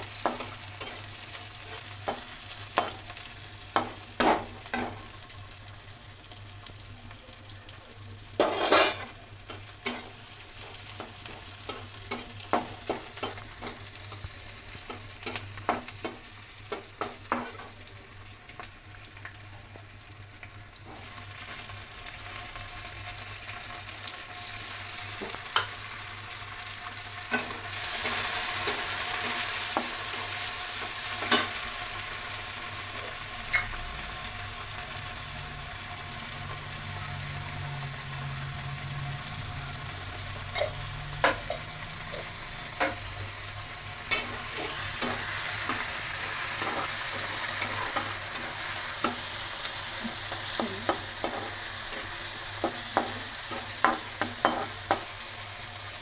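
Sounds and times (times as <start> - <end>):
spatula scraping a wok: 0.0 - 5.0, 8.4 - 17.7, 44.0 - 55.3
vegetables sizzling in oil: 0.0 - 56.0.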